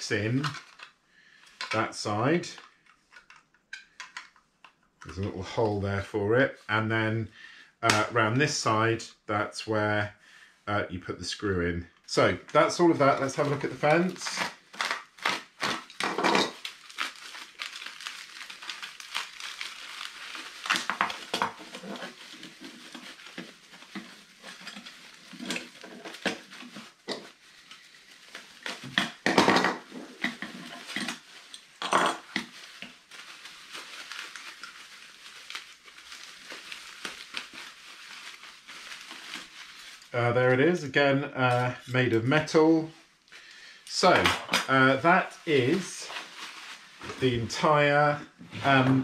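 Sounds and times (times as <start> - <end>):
bubble wrap crinkling: 0.0 - 5.8, 12.0 - 40.8, 45.0 - 49.0.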